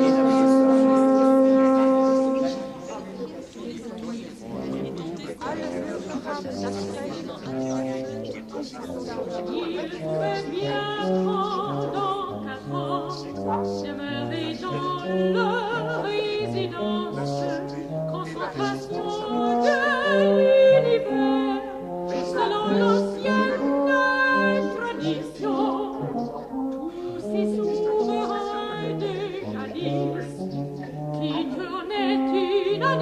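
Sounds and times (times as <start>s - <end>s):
orchestral music: 0.0s - 3.0s
operatic singing with vibrato: 0.0s - 33.0s.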